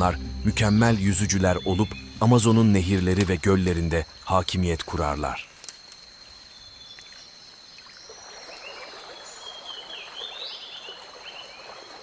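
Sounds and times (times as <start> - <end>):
high insect drone: 0.0 - 9.2.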